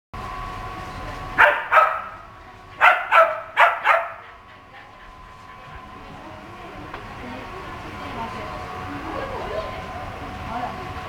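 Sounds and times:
dog barking: 0:01.4 - 0:02.2, 0:02.8 - 0:04.4.

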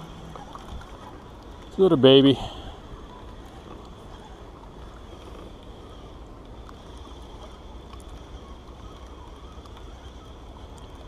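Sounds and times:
steady wind: 0:00.0 - 0:11.0
faint ticks: 0:03.3 - 0:11.0.

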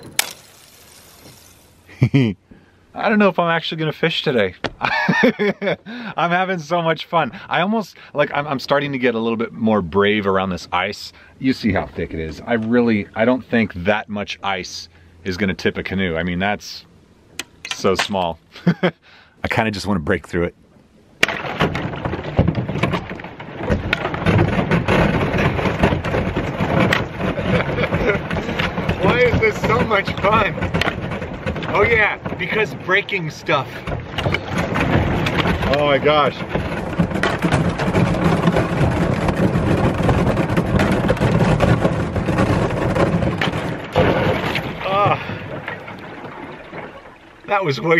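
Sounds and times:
ice crunching and cracking: 0:00.0 - 0:01.9, 0:34.3 - 0:46.2
ice scraping along hull: 0:00.0 - 0:01.9, 0:21.8 - 0:47.9
thin ice cracking and shattering: 0:00.0 - 0:01.9.

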